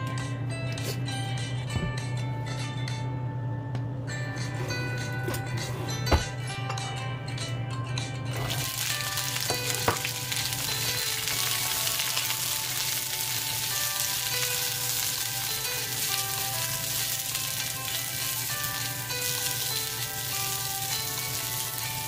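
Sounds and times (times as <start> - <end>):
beans sizzling in a wok: 8.4 - 22.0.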